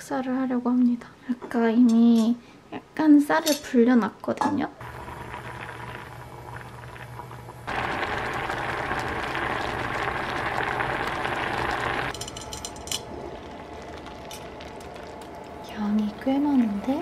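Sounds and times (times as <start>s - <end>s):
rice bubbling at the boil: 4.8s - 17.0s.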